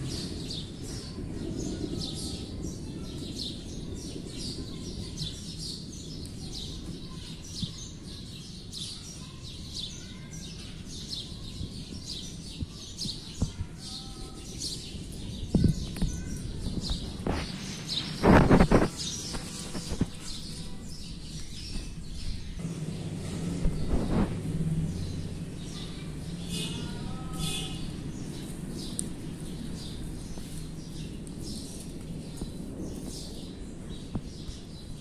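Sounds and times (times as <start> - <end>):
low rumble: 22.2 - 26.4.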